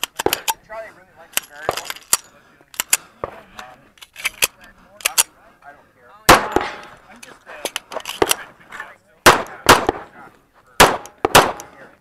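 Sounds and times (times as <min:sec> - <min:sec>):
pistol shots: 0:06.3 - 0:07.0, 0:09.2 - 0:10.1, 0:10.8 - 0:11.7.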